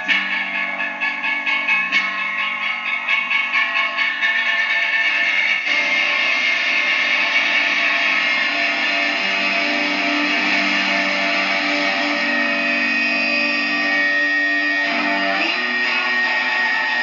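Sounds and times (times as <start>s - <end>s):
guitar feedback tones: 0.0s - 1.2s, 5.6s - 17.0s
distorted electric guitar noise: 0.0s - 17.0s.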